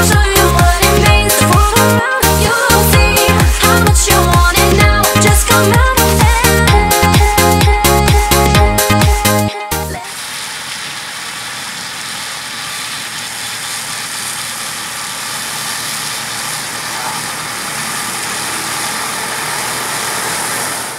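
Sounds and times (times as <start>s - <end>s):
dance music: 0.0s - 10.1s
strong even hiss: 10.0s - 20.7s
tractor engine and mower: 10.0s - 20.9s.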